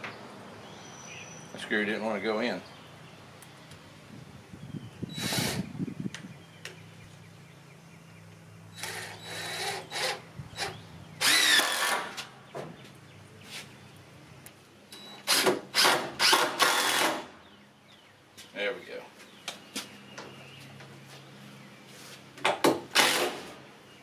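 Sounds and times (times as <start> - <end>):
cordless drill driving screws: 5.2 - 5.7, 8.8 - 12.2, 15.2 - 17.3, 22.9 - 23.4.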